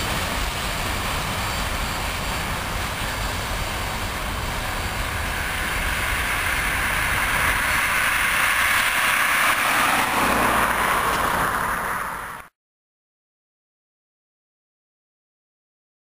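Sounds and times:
train rumble: 0.0s - 12.5s
car passing on road: 4.3s - 12.5s.

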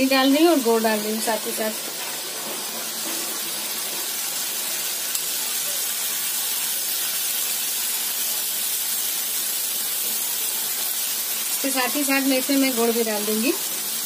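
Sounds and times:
water sizzling in hot pan: 0.0s - 14.0s.

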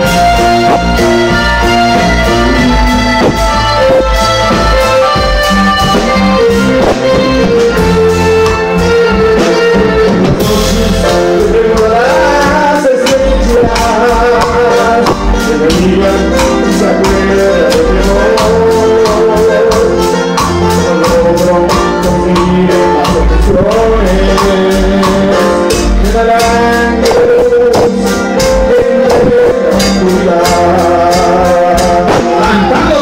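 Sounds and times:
fast percussion beat: 0.0s - 33.0s
loud band music: 0.0s - 33.0s
person singing: 0.0s - 33.0s.

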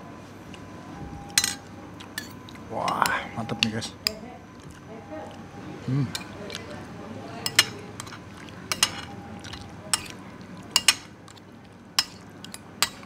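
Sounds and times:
cutlery clinking on ceramic plate: 1.3s - 4.2s, 7.4s - 10.2s, 10.8s - 11.1s, 12.0s - 13.0s.

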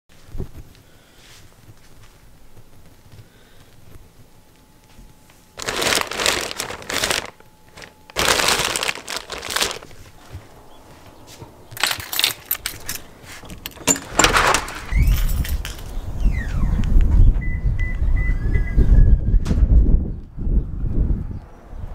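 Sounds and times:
plastic wrapping crinkling: 3.9s - 10.5s
keys jingling: 11.7s - 16.0s.

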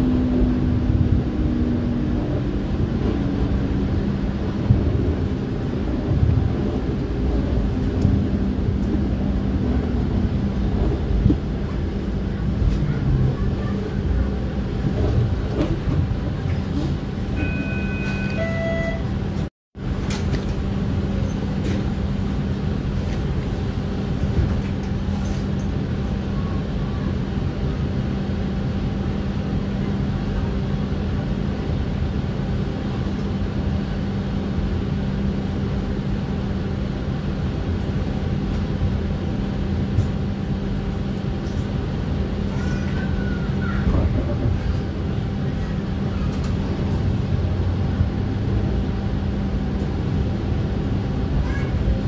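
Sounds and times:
streetcar drive hum: 0.0s - 52.0s
wheel and rail rumble: 0.0s - 52.0s
brief higher tone: 17.3s - 19.2s.

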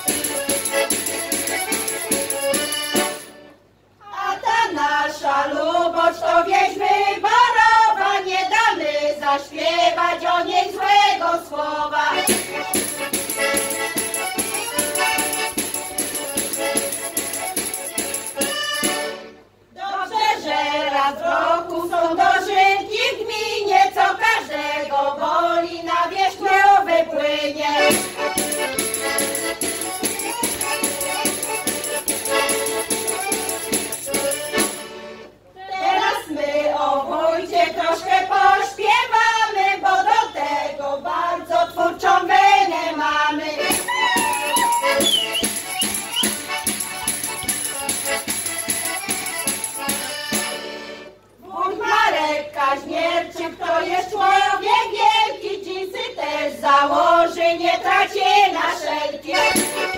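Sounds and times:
accordion playing: 0.0s - 3.6s, 12.0s - 19.6s, 27.7s - 35.4s, 43.5s - 51.2s, 59.2s - 59.9s
women singing folk song in unison: 4.0s - 19.1s, 19.7s - 34.8s, 35.6s - 59.9s.

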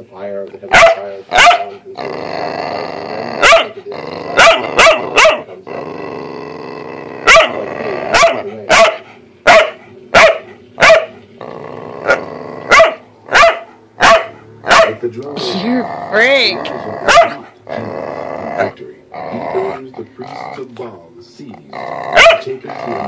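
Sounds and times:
dog barking sharply: 0.7s - 1.7s, 3.4s - 3.7s, 4.4s - 5.5s, 7.3s - 7.6s, 8.2s - 11.1s, 12.7s - 15.0s, 17.1s - 17.4s, 22.2s - 22.4s
dog growling: 1.3s - 8.8s, 11.2s - 13.4s, 14.6s - 23.0s.

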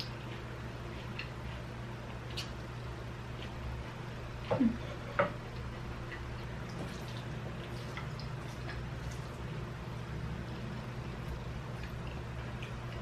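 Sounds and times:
steady low hum: 0.0s - 13.0s
chewing noodles: 11.2s - 13.0s.

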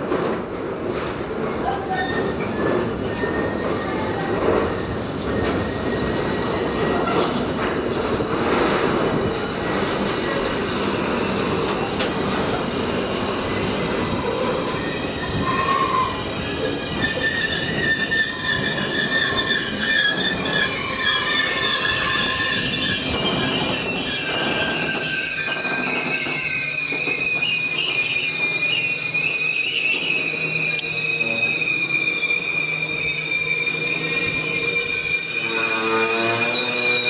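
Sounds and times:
freight train wheels rumbling: 0.0s - 37.0s
high wheel squeal: 1.6s - 7.1s, 14.1s - 37.0s.

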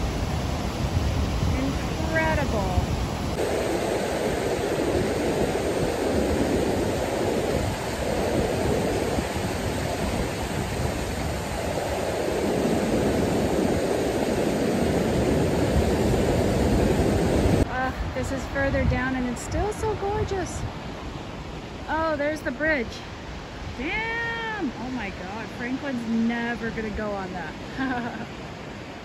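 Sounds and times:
water rushing over rocks: 0.0s - 19.5s.

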